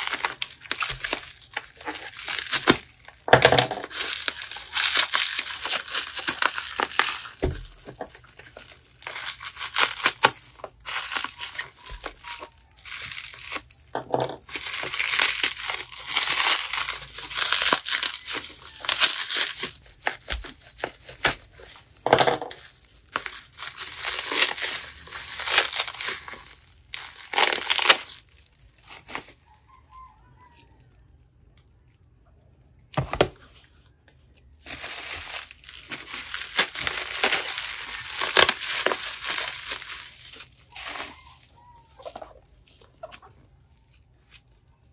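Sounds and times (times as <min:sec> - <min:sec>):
bubble wrap crinkling and rustling: 0:00.0 - 0:30.8, 0:34.2 - 0:44.9.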